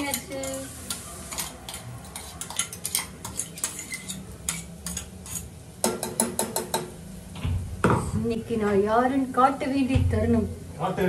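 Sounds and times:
faint sizzle: 0.0 - 5.8
ladle scraping metal pot: 1.3 - 5.5.

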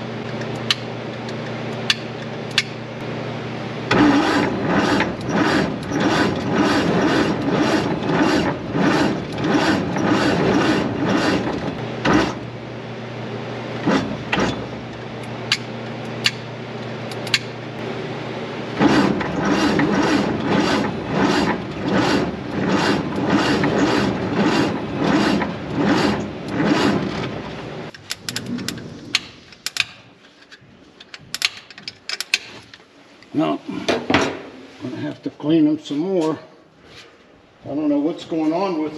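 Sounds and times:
engine cranking without firing: 3.9 - 12.5, 18.8 - 30.0.

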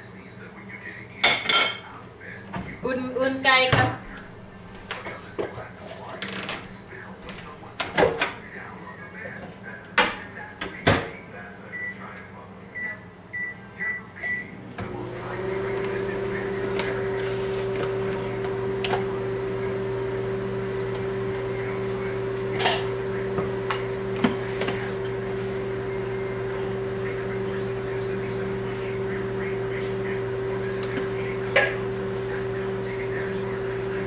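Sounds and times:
microwave oven humming: 6.0 - 34.0
microwave keypad beeps: 11.7 - 12.1, 12.8 - 14.5.

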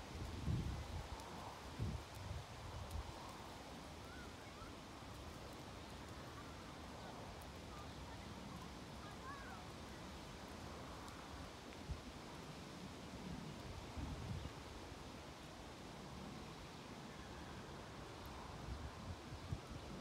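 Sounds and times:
faint bird chirps: 4.0 - 4.8.

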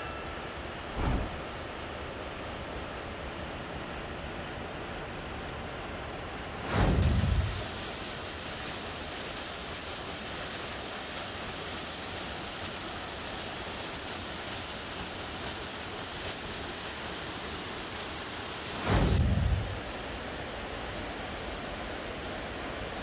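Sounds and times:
waterfall rushing over rocks: 0.0 - 23.0
loud low rumble: 0.9 - 1.9, 18.9 - 20.0.

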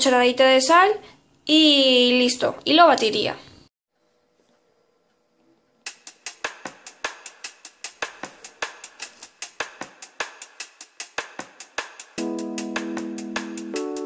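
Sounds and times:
fast drum and cymbal beat: 5.9 - 14.0.

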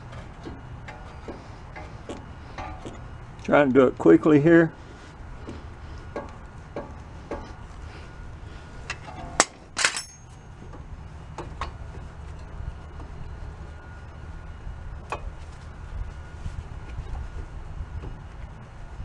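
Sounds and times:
low steady hum: 0.0 - 19.0
pliers clanking on metal caliper: 8.9 - 10.4.

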